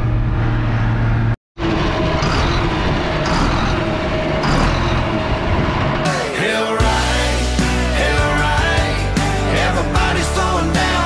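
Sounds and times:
tractor diesel engine running: 0:01.6 - 0:06.1.

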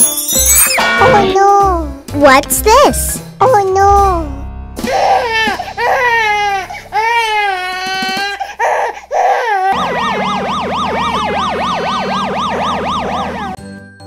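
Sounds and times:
warbling tone: 0:09.8 - 0:13.6.

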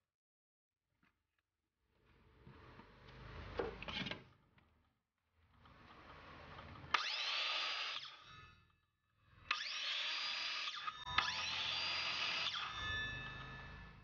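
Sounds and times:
circular saw motor whining: 0:06.9 - 0:08.7, 0:09.4 - 0:14.0.

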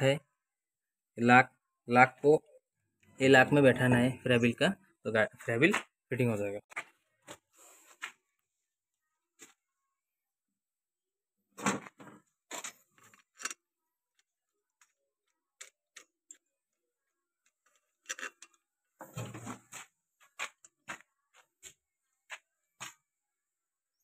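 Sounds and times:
metal bolts clinking: 0:12.5 - 0:13.6, 0:17.6 - 0:18.6.

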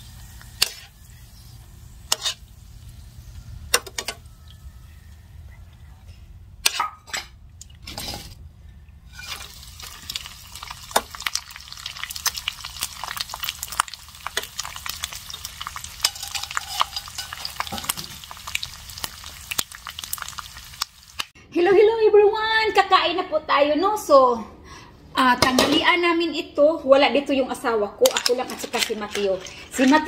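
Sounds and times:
squid sizzling in oil: 0:00.0 - 0:04.6, 0:09.1 - 0:21.3
tongs clicking on pan: 0:03.7 - 0:04.2, 0:15.7 - 0:18.6
oil spatters popping: 0:09.2 - 0:21.3.

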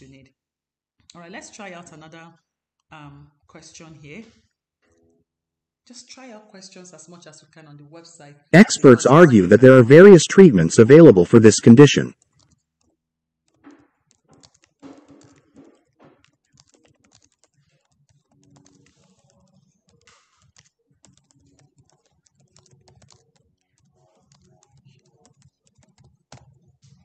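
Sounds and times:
faint keyboard typing: 0:08.6 - 0:27.0.

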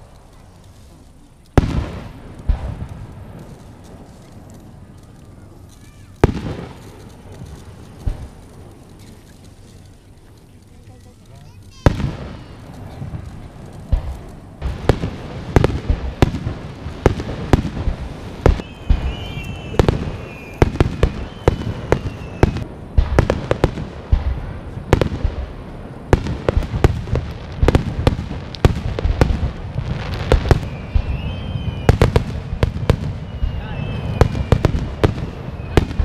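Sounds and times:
fireworks bangs: 0:00.0 - 0:36.0
high gliding whistles: 0:18.4 - 0:22.6, 0:30.4 - 0:36.0.

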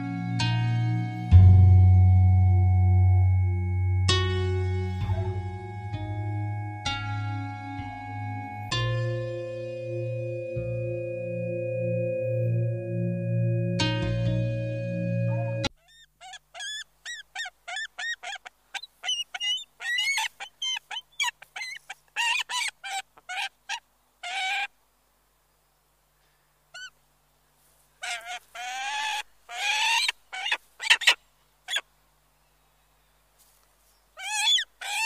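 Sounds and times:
eagle yelping calls: 0:15.3 - 0:24.7, 0:26.7 - 0:27.0, 0:28.0 - 0:31.9, 0:34.2 - 0:35.0.

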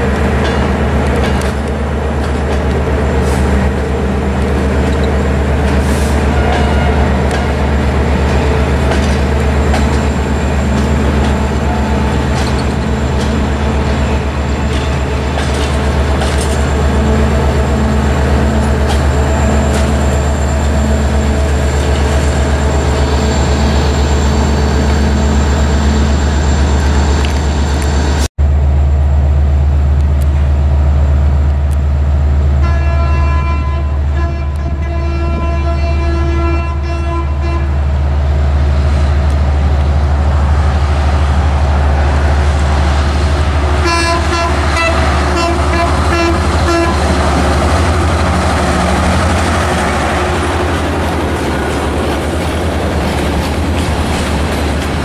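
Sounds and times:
train rumbling through station: 0:00.0 - 0:55.0
locomotive air horn blast: 0:05.8 - 0:07.6, 0:32.6 - 0:37.9, 0:43.8 - 0:47.4.

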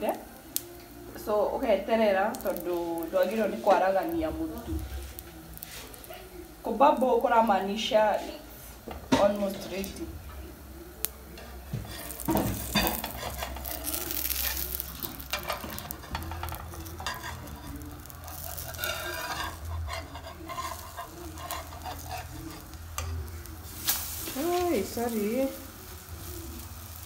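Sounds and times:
pancake sizzling in a frying pan: 0:00.0 - 0:27.0
spatula scraping and tapping pan: 0:11.4 - 0:25.6.

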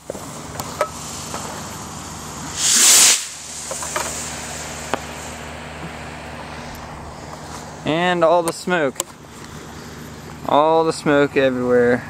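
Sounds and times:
rocket motor hissing: 0:00.0 - 0:08.3.

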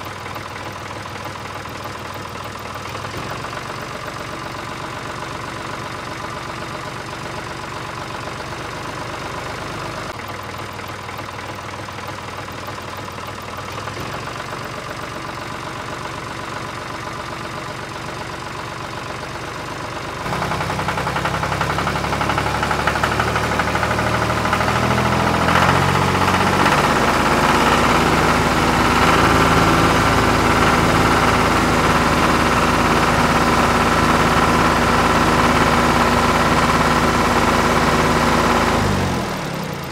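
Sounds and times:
engine idling with knocking: 0:00.0 - 0:39.9.

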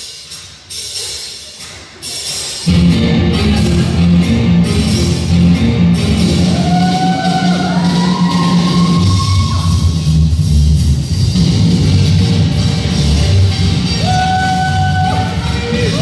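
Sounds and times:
rock band music: 0:02.7 - 0:09.0.

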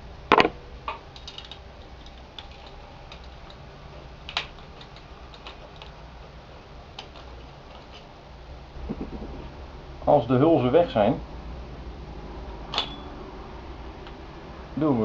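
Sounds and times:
small metal clicks and taps: 0:00.9 - 0:03.6.

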